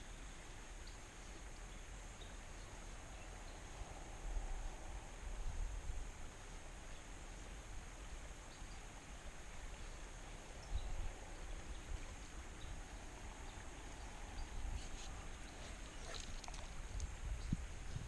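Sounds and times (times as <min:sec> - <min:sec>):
steady high hiss: 0:00.0 - 0:18.0
wind rumble on microphone: 0:03.0 - 0:06.7, 0:09.5 - 0:18.0
light ticks: 0:14.4 - 0:17.5.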